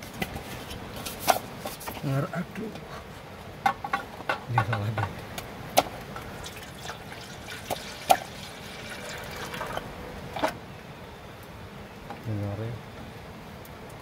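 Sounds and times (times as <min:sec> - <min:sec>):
water pouring into pot: 0:06.3 - 0:10.5.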